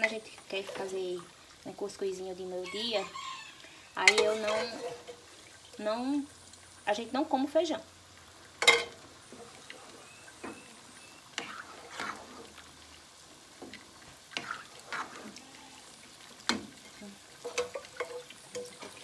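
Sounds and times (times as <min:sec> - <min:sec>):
spoon stirring beans in broth: 0:03.1 - 0:05.7, 0:08.6 - 0:19.0.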